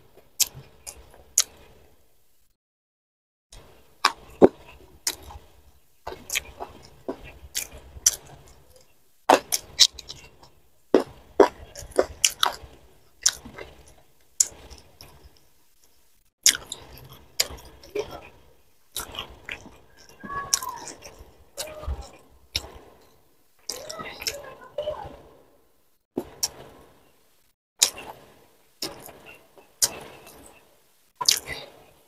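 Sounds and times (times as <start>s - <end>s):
crunches and mouth clicks: 0.2s - 1.8s, 4.0s - 24.5s, 27.8s - 31.9s
wet chewing: 0.4s - 1.8s, 3.7s - 24.5s, 28.8s - 31.8s.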